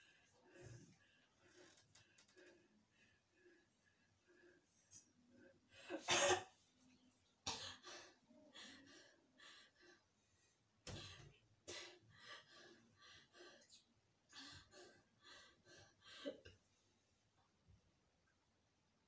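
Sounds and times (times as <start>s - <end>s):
person coughing: 5.9s - 6.6s.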